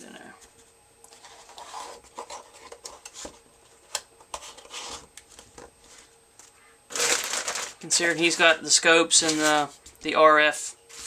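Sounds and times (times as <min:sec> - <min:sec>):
cardboard rubbing and scraping: 0:01.2 - 0:03.4.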